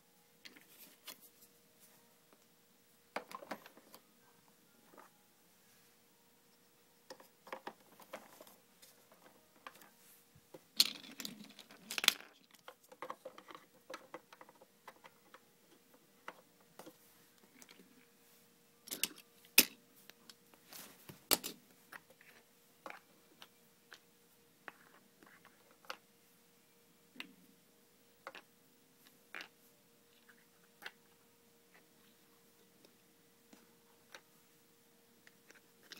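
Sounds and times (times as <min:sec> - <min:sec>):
plastic toy pieces clicking: 0:10.8 - 0:15.4.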